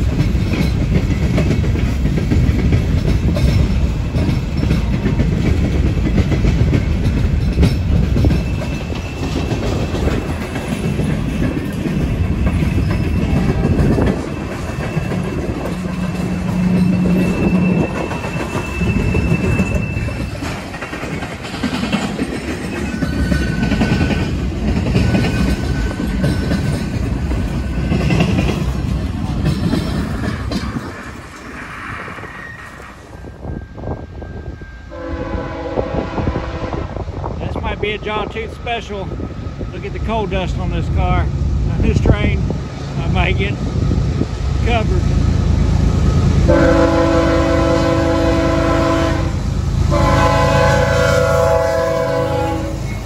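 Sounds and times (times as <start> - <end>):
train wheels clattering on rails: 0.0 - 53.0
faint wheel squeals: 16.4 - 20.6.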